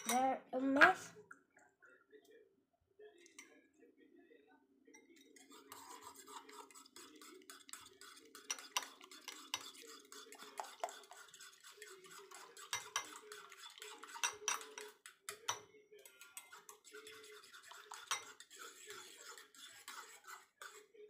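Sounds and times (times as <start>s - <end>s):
metal spoon beating in bowl: 5.0s - 20.8s.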